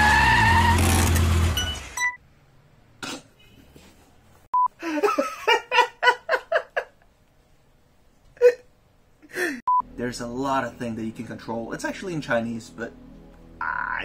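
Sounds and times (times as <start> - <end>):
tyre screech: 0.0 - 1.8
man laughing loudly: 4.8 - 7.0.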